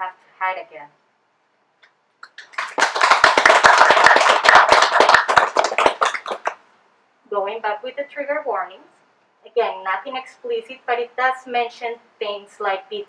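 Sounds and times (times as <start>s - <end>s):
audience clapping: 2.2s - 6.6s.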